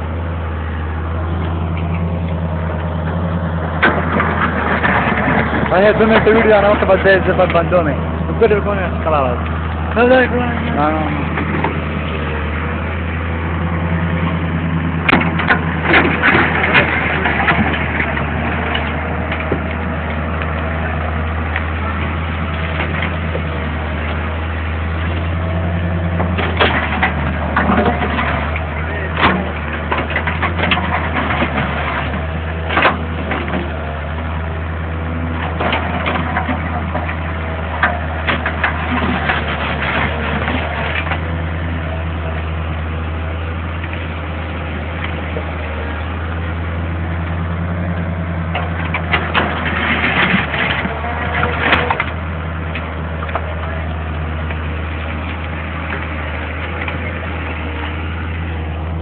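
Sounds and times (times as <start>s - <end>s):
diesel engine running: 0.0s - 59.0s
bucket scraping stones: 35.4s - 41.3s.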